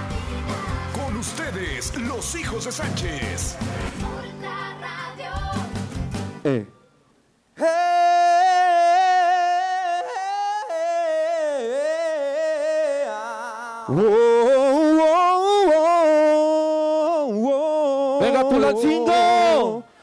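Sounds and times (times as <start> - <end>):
person singing long notes: 7.6 - 19.9.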